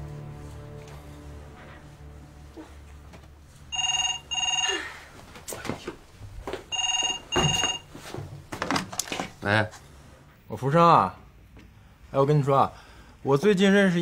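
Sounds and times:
telephone ringing: 0:03.7 - 0:04.9, 0:06.7 - 0:08.0.

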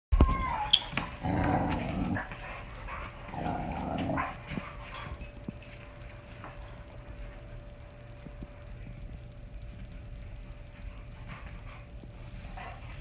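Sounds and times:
dog whining: 0:00.2 - 0:02.3
dog growling: 0:00.7 - 0:04.8.

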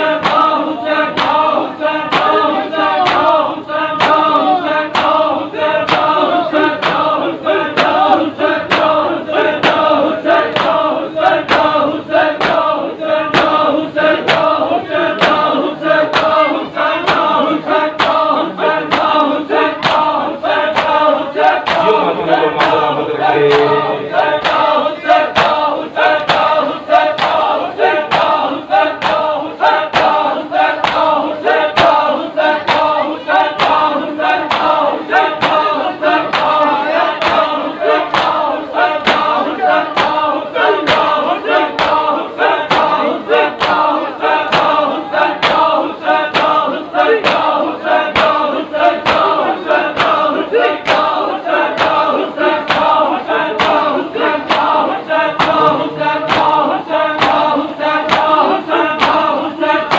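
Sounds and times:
men chanting in unison: 0:00.0 - 0:59.9
hands slapping bare chests: 0:01.1 - 0:01.5, 0:30.8 - 0:31.2.

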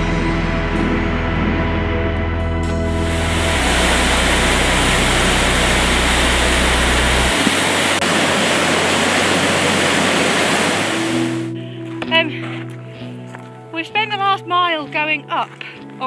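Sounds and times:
low held music notes: 0:00.0 - 0:08.0
water rushing over boulders: 0:02.9 - 0:11.5.

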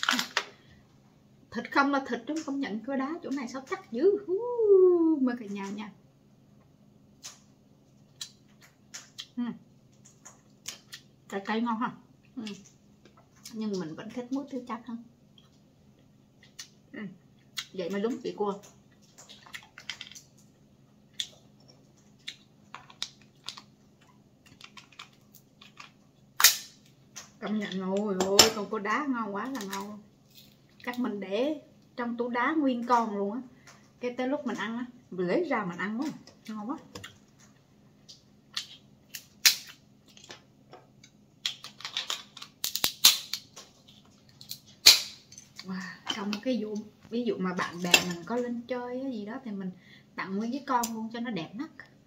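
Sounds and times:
cracks and clicks: 0:18.6 - 0:28.6, 0:36.0 - 0:46.9
crab shell cracking: 0:21.1 - 0:27.4, 0:38.1 - 0:45.7
crab shell clicking: 0:41.0 - 0:43.7.

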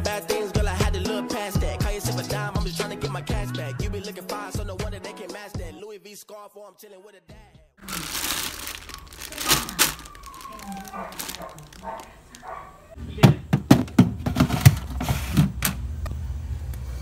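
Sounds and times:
plastic bags rustling: 0:07.8 - 0:13.0
plastic drawer knocking and clattering: 0:13.2 - 0:15.8.

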